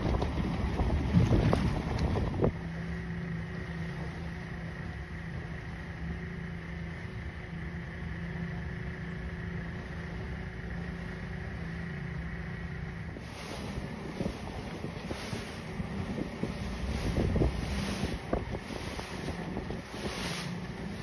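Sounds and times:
boat engine hum with whine: 0:00.0 - 0:21.0
wind: 0:00.0 - 0:21.0
water noise: 0:09.7 - 0:21.0.

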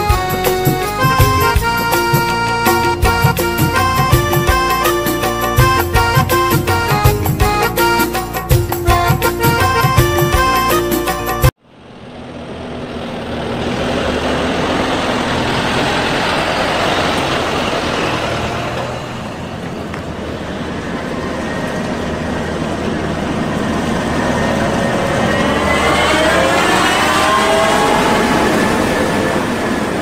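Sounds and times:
combine harvester engine drone: 0:00.0 - 0:30.0.

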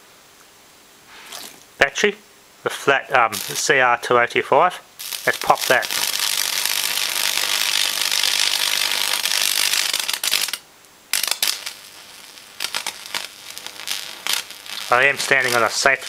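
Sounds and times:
electrical arcing crackle: 0:03.1 - 0:04.0, 0:05.0 - 0:16.0.

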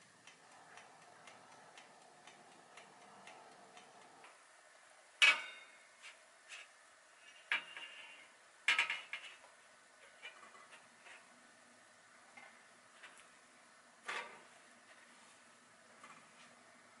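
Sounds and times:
baking tray clanking: 0:05.2 - 0:05.8, 0:07.3 - 0:09.4.

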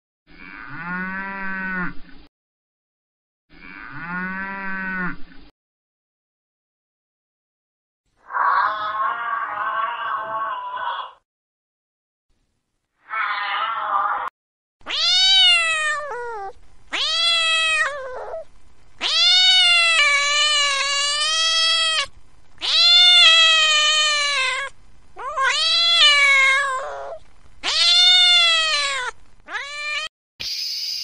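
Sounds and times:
kitten meowing: 0:13.1 - 0:30.1.

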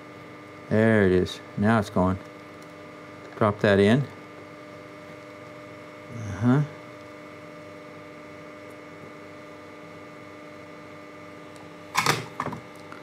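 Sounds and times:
electrical hum: 0:00.0 - 0:13.0
man's short vocal sound: 0:06.1 - 0:06.8.

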